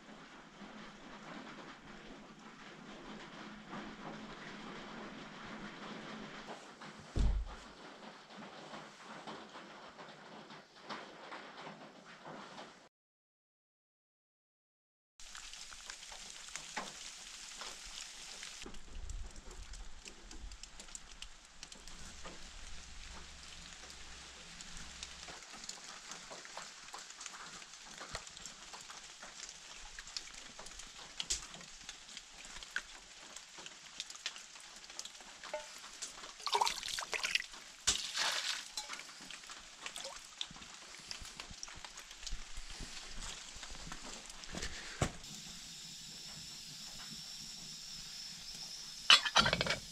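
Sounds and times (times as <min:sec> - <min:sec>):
rain dripping on leaves and roof: 0:00.0 - 0:12.7, 0:15.2 - 0:49.9
mug splashing in bucket of water: 0:36.4 - 0:41.2, 0:49.1 - 0:49.9.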